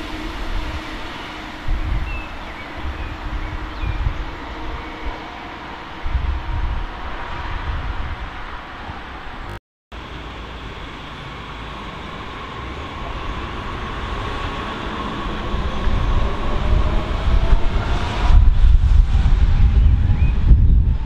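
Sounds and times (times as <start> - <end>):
heavy low rumble: 13.0 - 21.0.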